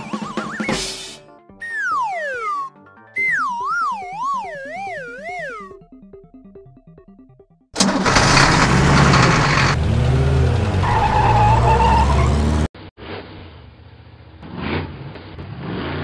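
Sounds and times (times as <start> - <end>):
cartoon engine revving: 1.7 - 5.8, 7.8 - 12.7.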